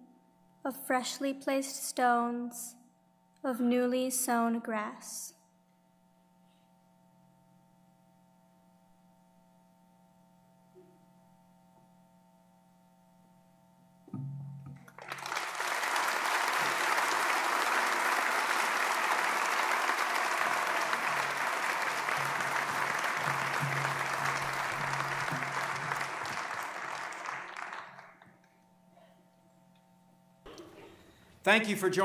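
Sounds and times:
audience applauding: 14.8s - 28.5s.

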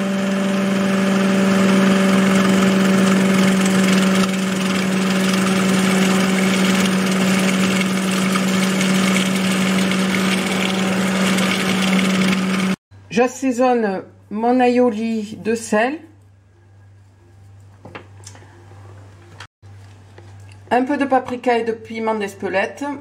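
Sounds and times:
food processor motor humming: 0.0s - 12.8s.

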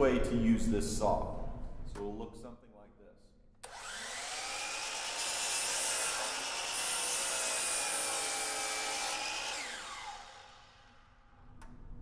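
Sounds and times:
miter saw cutting wood: 3.6s - 11.1s
saw motor winding down: 3.6s - 11.1s.

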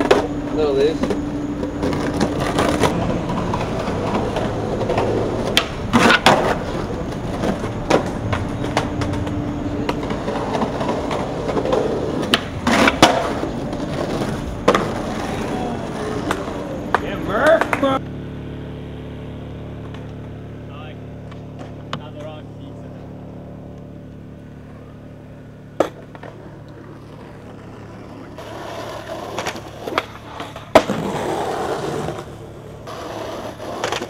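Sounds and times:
skateboard wheels rolling on concrete: 0.0s - 34.0s
skateboard slapping down: 1.0s - 18.0s, 25.7s - 34.0s
skateboard tail popping: 1.0s - 18.1s, 25.6s - 34.0s.

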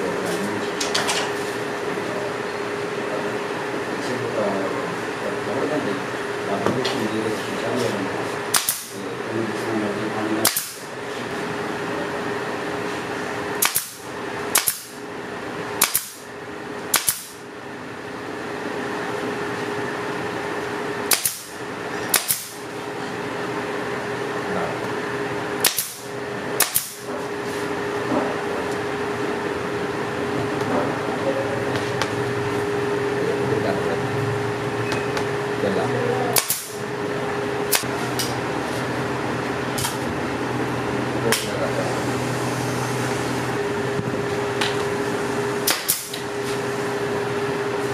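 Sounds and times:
steady hum: 0.0s - 47.9s
pneumatic nailer firing: 8.5s - 9.0s, 10.4s - 10.9s, 13.6s - 15.0s, 15.8s - 16.3s, 16.9s - 17.4s, 21.0s - 22.7s, 25.6s - 27.1s, 36.4s - 36.8s, 37.7s - 38.3s, 45.6s - 46.3s.

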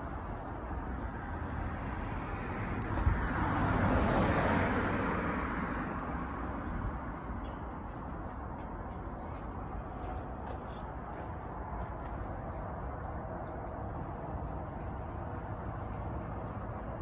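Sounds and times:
car passing by: 0.8s - 12.6s.

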